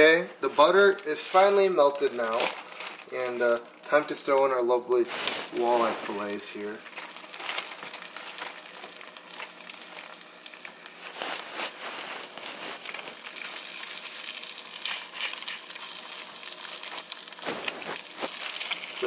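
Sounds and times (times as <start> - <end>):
fish sizzling in butter: 5.2 - 19.0.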